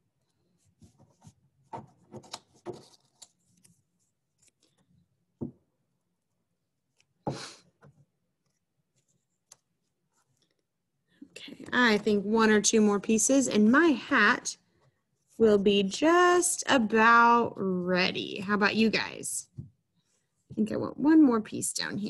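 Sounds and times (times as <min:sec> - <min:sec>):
paper rustling: 0:00.5 - 0:05.0.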